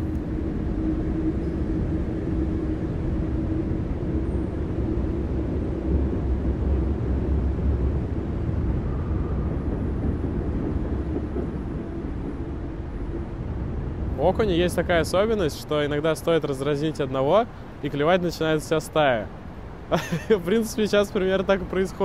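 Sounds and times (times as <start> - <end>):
distant city traffic rumble: 0.0 - 22.0
faint steady hum: 0.0 - 22.0.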